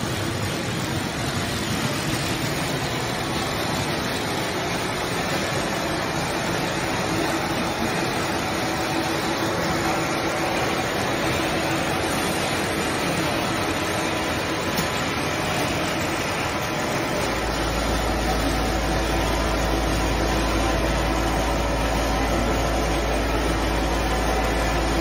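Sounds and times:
machinery hum and hiss: 0.0 - 25.0.

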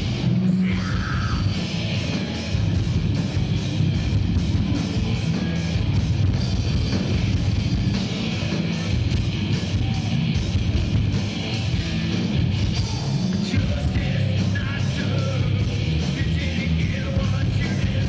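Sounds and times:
bass guitar: 0.0 - 18.0
distorted electric guitars: 0.0 - 18.0
drum kit with cymbal strokes: 0.0 - 18.0.

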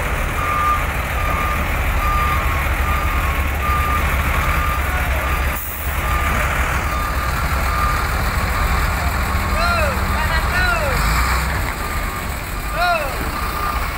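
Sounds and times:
diesel engine rumble: 0.0 - 13.9
truck reversing alarm beeping: 0.0 - 13.9.

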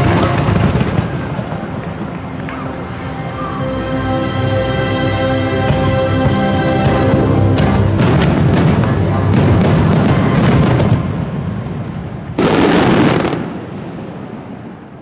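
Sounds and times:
fireworks banging and crackling: 0.0 - 3.6, 5.7 - 15.0.

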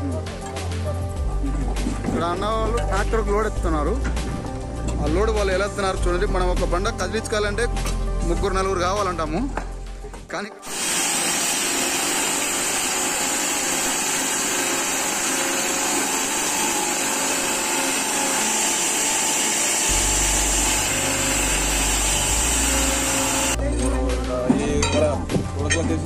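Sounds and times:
stone saw grinding with whine: 10.6 - 23.6.

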